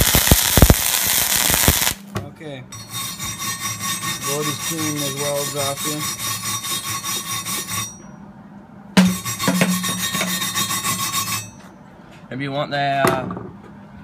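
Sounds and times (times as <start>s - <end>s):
wire brush scrubbing steel: 2.8s - 8.0s, 9.0s - 11.6s.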